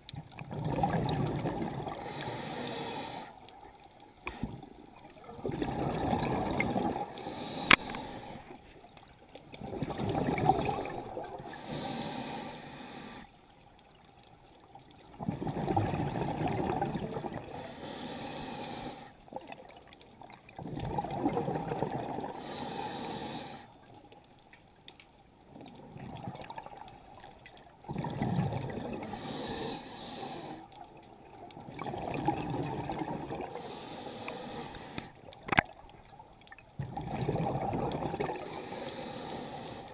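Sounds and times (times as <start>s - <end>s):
gurgling exhaled bubbles: 0.0s - 2.2s, 4.6s - 7.2s, 9.6s - 11.6s, 15.0s - 17.6s, 19.3s - 22.5s, 25.6s - 27.2s, 27.8s - 29.4s, 31.3s - 33.6s, 36.8s - 38.8s
diver breathing through regulator: 1.7s - 3.4s, 5.7s - 8.6s, 11.3s - 13.3s, 17.4s - 19.2s, 22.3s - 23.7s, 29.0s - 30.8s, 33.4s - 35.2s, 38.4s - 39.9s.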